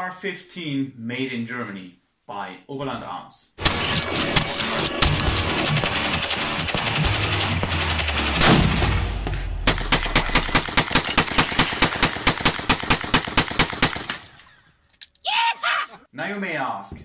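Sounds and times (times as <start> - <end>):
loud gun blast: 3.6 - 14.3
rifle rapid fire: 3.6 - 14.4.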